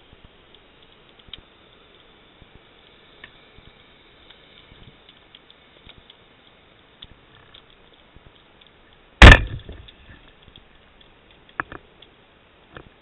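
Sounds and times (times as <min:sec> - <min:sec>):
speargun shot underwater: 0:09.2 - 0:09.8.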